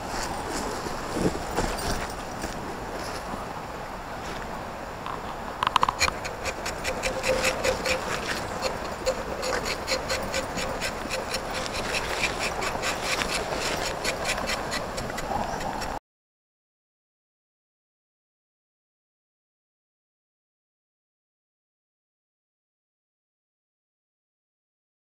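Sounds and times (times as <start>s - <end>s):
outdoor background noise: 0.0s - 16.0s
short repeated animal calls: 5.9s - 15.9s.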